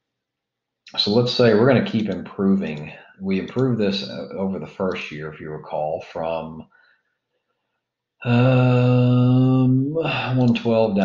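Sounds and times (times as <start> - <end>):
man humming hesitation sound: 1.0 - 6.6, 8.2 - 11.0.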